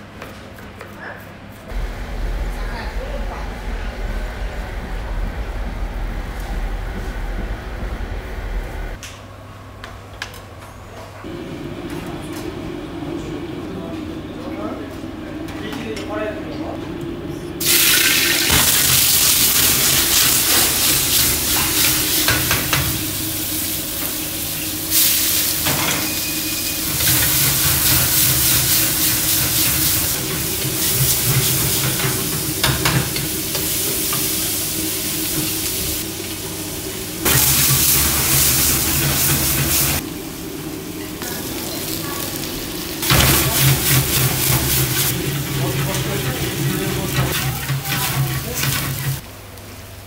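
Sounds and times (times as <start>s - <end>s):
food sizzling in a wok: 17.6s - 49.3s.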